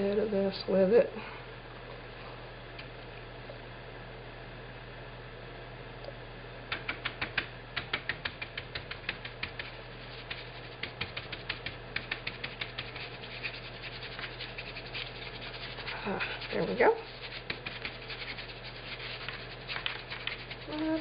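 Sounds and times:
paintbrush scrubbing fabric: 8.1s - 21.0s
soft rubbing: 8.3s - 21.0s.

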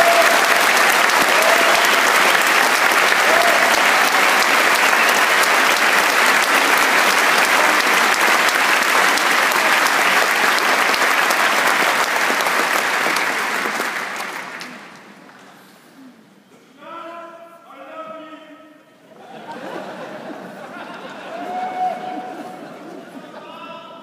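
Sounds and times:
audience applauding: 0.0s - 15.5s.

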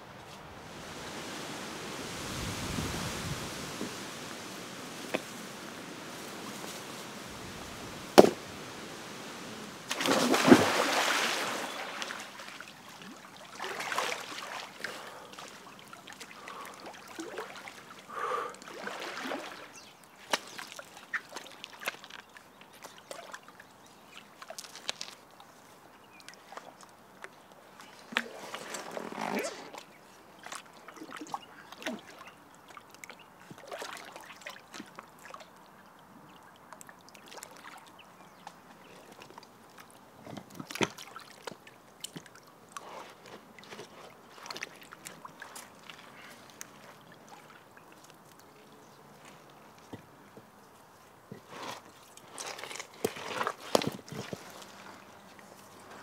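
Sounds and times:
water sloshing around person wading: 4.9s - 56.0s
big water splash: 7.2s - 12.5s
stone knocking: 8.2s - 8.4s.

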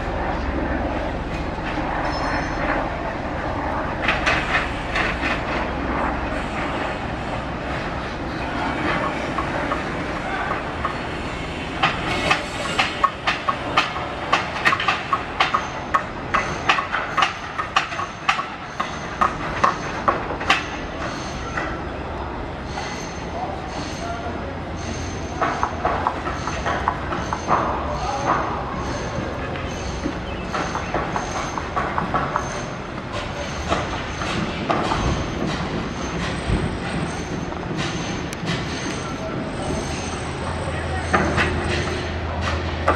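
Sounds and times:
machinery rumble: 0.0s - 42.9s
steady background noise: 0.0s - 42.9s
faint high squeal: 2.0s - 2.7s.

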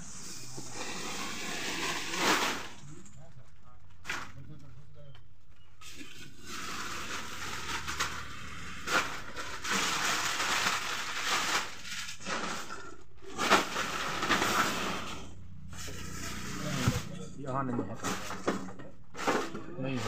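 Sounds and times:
plastic bags rustling: 5.8s - 17.1s.

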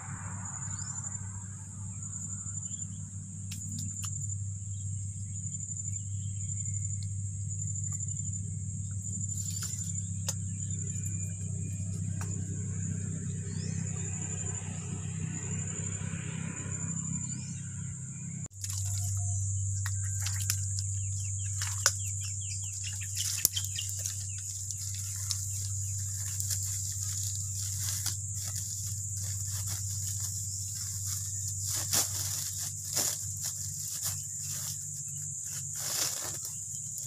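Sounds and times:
steady low hum: 0.0s - 37.0s
steady high whine: 17.4s - 37.0s
clicks knocks and rustles in mud: 18.6s - 34.8s.

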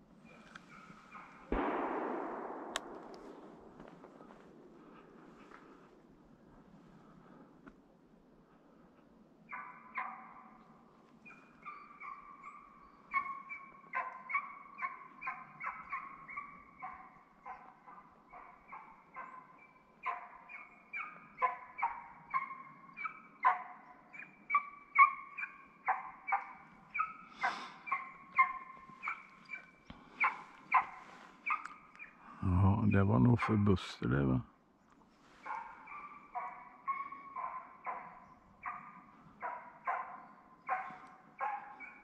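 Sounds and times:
hound baying: 11.3s - 33.2s, 35.4s - 42.0s.

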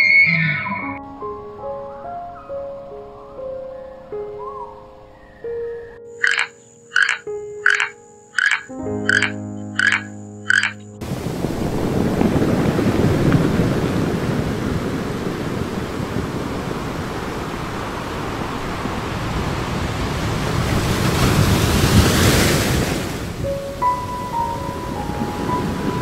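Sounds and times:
ocean surf washing onto beach: 10.5s - 26.0s.

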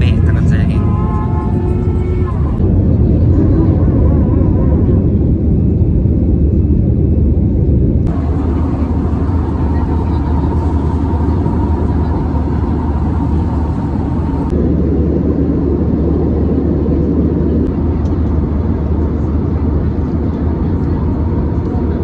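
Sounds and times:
airliner cabin engine rumble: 0.0s - 22.0s.

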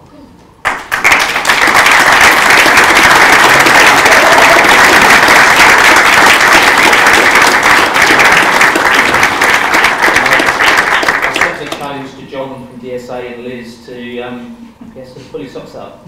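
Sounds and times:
audience applauding: 0.6s - 11.8s.

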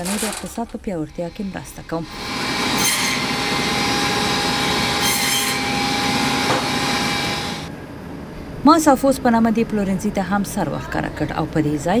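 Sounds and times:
band saw whining: 0.0s - 7.7s.

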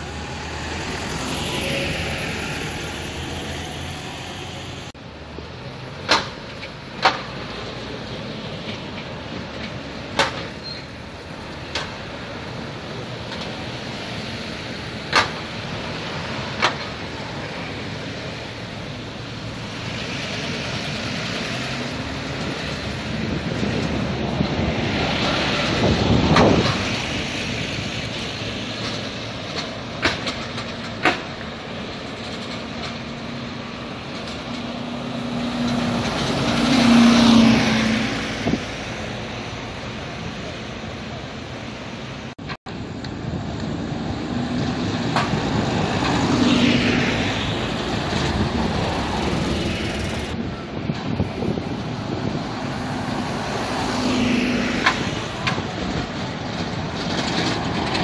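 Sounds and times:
diesel buses passing: 0.0s - 58.0s
traffic noise: 0.0s - 58.0s.

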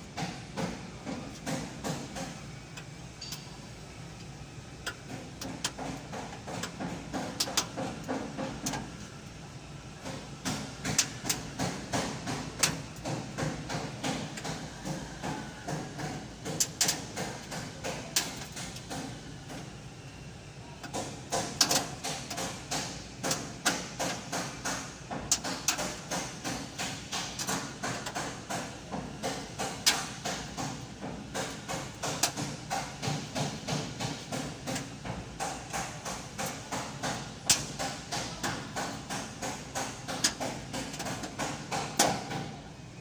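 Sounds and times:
repeated knocking: 0.2s - 2.4s, 5.1s - 8.7s, 20.9s - 42.5s.

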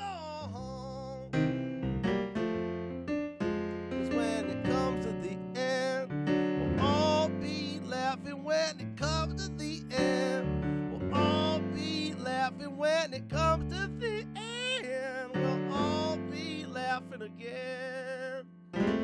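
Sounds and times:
man singing with vibrato: 0.0s - 1.4s, 4.0s - 6.2s, 6.8s - 18.5s
digital piano chords: 1.1s - 19.0s.

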